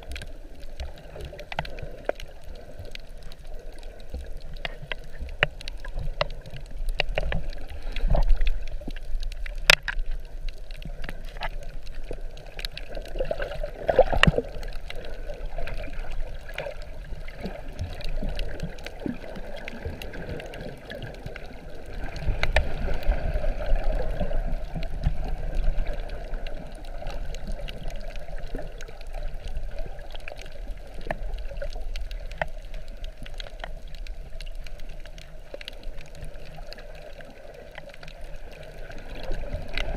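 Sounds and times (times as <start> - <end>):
muffled underwater water sloshing: 0.0 - 39.9
small underwater clicks: 0.0 - 39.9.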